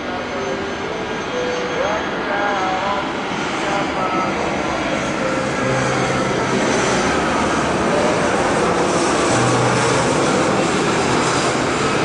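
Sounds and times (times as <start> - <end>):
faint high whine: 0.0 - 11.6
jet airliner roar overhead: 0.0 - 12.0.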